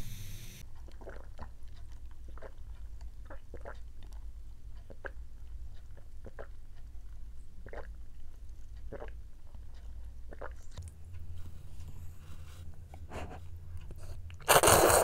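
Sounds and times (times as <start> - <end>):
swallowing gulps: 0.9 - 4.2, 6.0 - 6.6, 7.6 - 8.0, 8.8 - 9.2, 10.3 - 10.8
sipping through a straw: 14.4 - 15.0.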